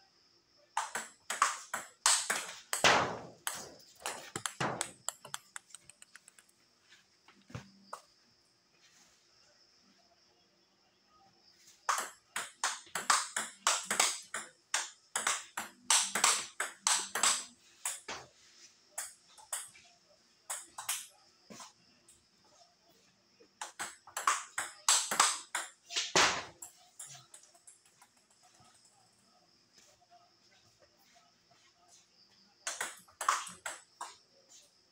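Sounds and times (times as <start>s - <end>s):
table tennis ball clicking: 0.8s - 6.5s, 11.9s - 18.0s, 32.7s - 34.2s.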